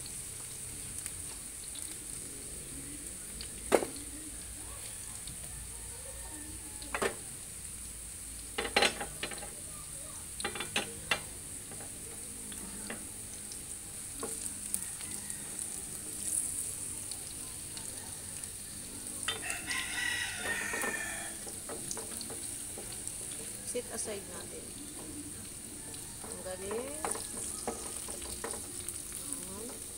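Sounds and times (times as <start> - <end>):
vegetables sizzling in oil: 0.0 - 29.9
kitchenware clicks and knocks: 8.6 - 9.6, 10.4 - 12.0
spatula scraping in a pan: 14.2 - 29.9.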